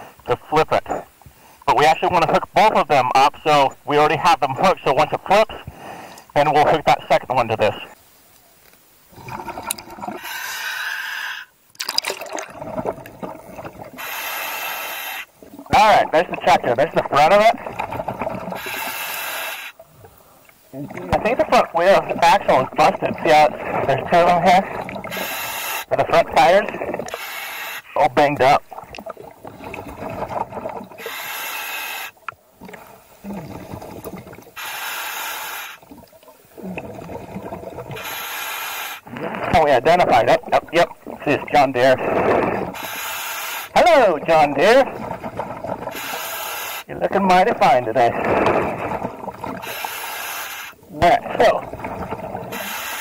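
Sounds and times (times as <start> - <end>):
quiet underwater breathing: 0.0 - 0.3, 0.9 - 1.7, 5.6 - 6.4, 9.1 - 11.6, 12.5 - 15.7, 17.6 - 21.1, 23.4 - 28.0, 28.7 - 39.6, 41.0 - 43.8, 44.9 - 46.9, 47.8 - 50.9, 51.6 - 53.0
steady hiss: 0.0 - 9.2, 13.8 - 17.6, 18.5 - 28.5, 30.9 - 33.2, 34.6 - 36.6, 38.0 - 39.7, 40.8 - 44.5, 49.6 - 51.0
hissing regulator inhalations: 5.6 - 6.4, 9.4 - 11.6, 13.9 - 15.3, 18.5 - 20.6, 24.7 - 26.0, 26.6 - 28.0, 31.0 - 32.2, 34.6 - 35.8, 37.9 - 39.5, 42.0 - 43.8, 45.9 - 46.9, 49.6 - 50.8, 52.5 - 53.0
water splashing and bubbling: 9.1 - 10.5, 11.6 - 14.2, 15.2 - 27.3, 28.0 - 38.3, 39.0 - 53.0
clicks and sloshes: 11.7 - 14.0.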